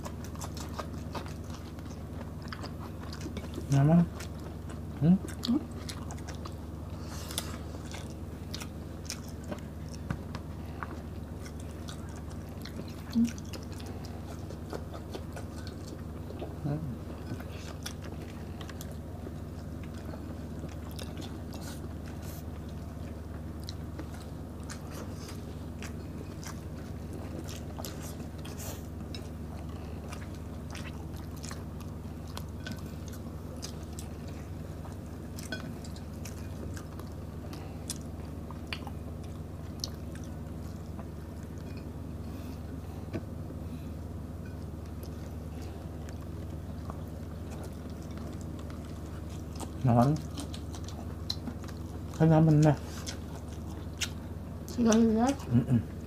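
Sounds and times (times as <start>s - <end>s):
wet chewing with mouth clicks: 0.0s - 43.3s, 43.9s - 56.0s
low room hum: 0.0s - 56.0s.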